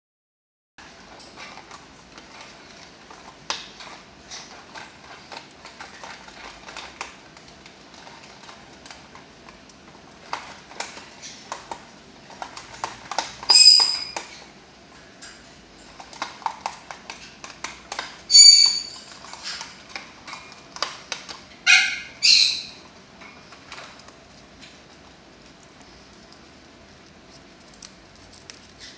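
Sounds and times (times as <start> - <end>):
bird chewing cardboard: 0.8 - 28.9
bird squawking: 18.3 - 19.0, 21.7 - 22.8.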